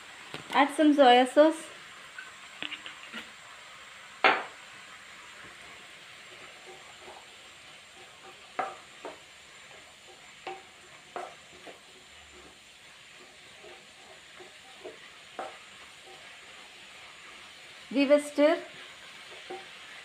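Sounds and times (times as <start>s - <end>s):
vegetables sizzling in a pan: 0.0s - 20.0s
spatula knocking and scraping pan: 4.2s - 4.6s, 5.4s - 17.6s, 18.6s - 20.0s.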